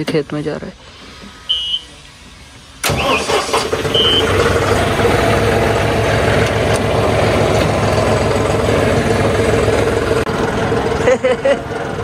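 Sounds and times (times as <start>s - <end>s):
tractor engine starting and idling: 0.9s - 12.0s
short electronic beep: 1.5s - 1.9s, 3.9s - 4.3s.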